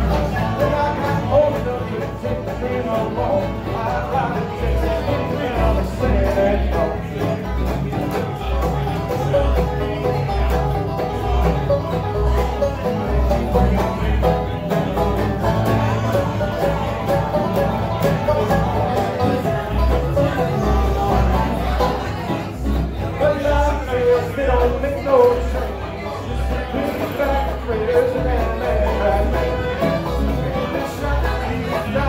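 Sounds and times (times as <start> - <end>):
banjo picking: 0.0 - 32.0
bluegrass band playing: 0.0 - 32.0.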